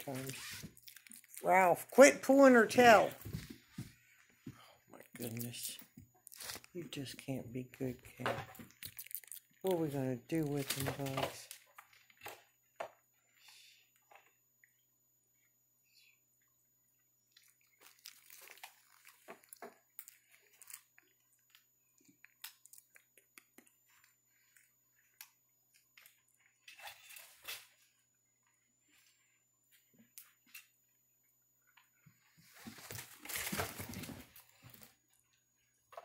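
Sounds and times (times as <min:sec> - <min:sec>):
monkeys rustling and scuffling: 0:32.2 - 0:34.9.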